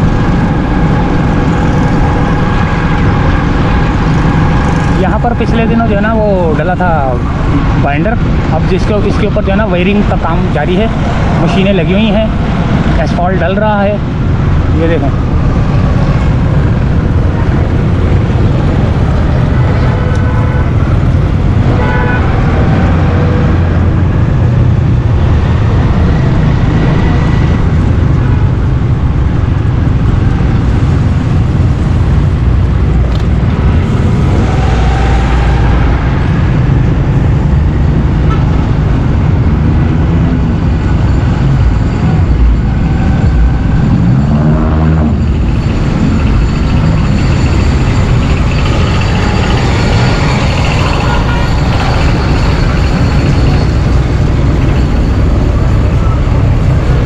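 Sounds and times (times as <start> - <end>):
motorcycle engine rumble: 0.0 - 57.0
wind noise: 0.0 - 57.0
vehicle horn toot: 21.7 - 23.4, 49.8 - 53.7.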